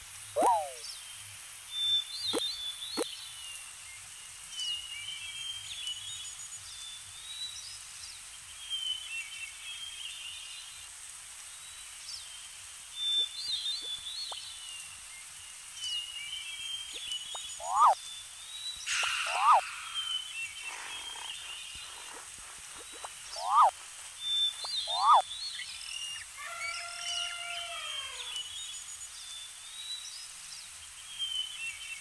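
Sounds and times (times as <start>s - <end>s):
steady hiss: 0.0s - 32.0s
birds chirping and whistling: 0.4s - 0.9s, 16.7s - 18.0s, 18.8s - 26.8s.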